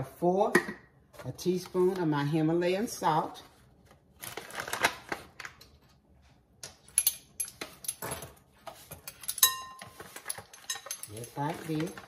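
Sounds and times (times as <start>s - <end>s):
metal measuring spoons clinking: 9.0s - 12.0s.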